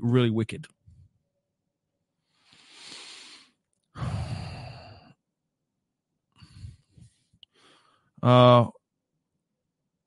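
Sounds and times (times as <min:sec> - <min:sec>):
man breathing in: 0:02.2 - 0:05.2, 0:06.4 - 0:08.1
man sighing heavily: 0:04.0 - 0:05.1.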